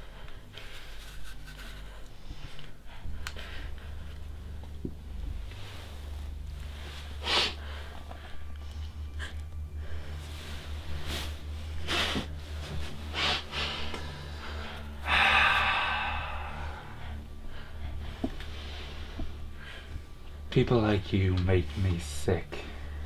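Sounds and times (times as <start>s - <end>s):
low hum: 0.0s - 23.0s
sharp breaths through nose: 7.0s - 8.7s.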